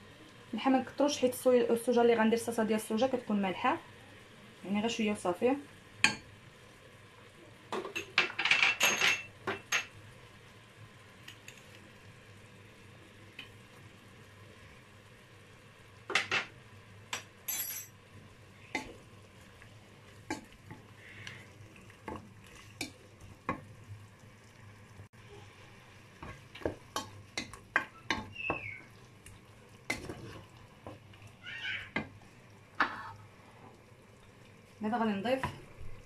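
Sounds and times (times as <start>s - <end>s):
food sizzling in oil: 0.0s - 36.0s
wooden spoon scraping a pot: 29.9s - 31.0s, 32.8s - 33.2s.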